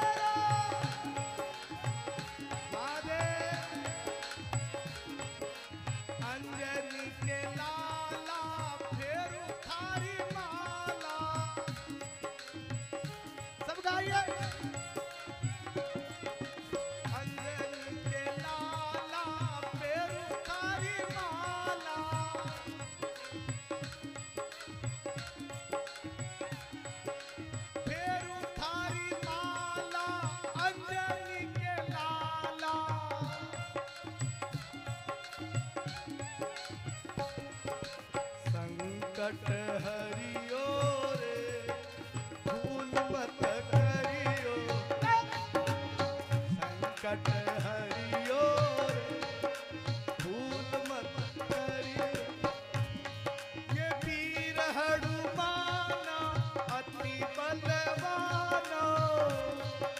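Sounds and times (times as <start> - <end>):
harmonium holding notes: 0.0 - 59.9
man singing: 0.0 - 59.9
hand drum beating rhythm: 23.5 - 54.5.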